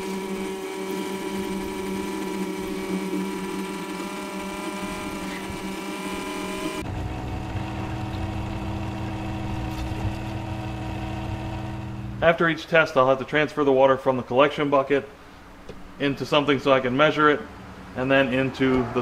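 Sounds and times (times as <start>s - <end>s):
electric motor humming: 0.0s - 12.2s.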